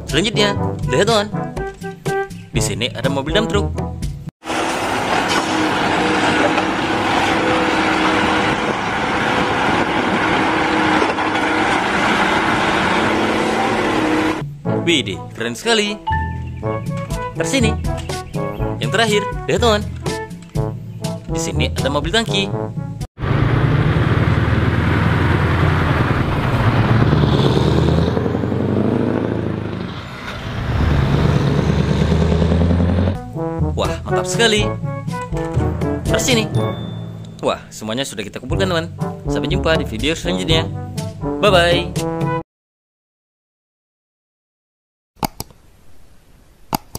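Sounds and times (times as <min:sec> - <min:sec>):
truck diesel engine droning: 0:04.4 - 0:14.8, 0:22.8 - 0:37.8.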